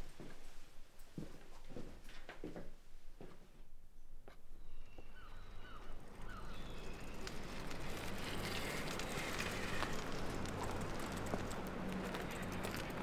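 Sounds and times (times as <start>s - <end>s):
birds chirping: 4.5s - 7.8s
steady outdoor rush: 5.4s - 13.0s
bicycle clicks: 6.2s - 13.0s.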